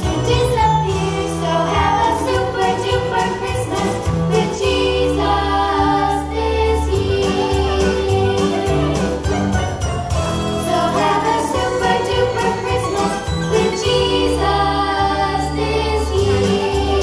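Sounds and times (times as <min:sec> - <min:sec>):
festive holiday song with sleigh bells: 0:00.0 - 0:17.0.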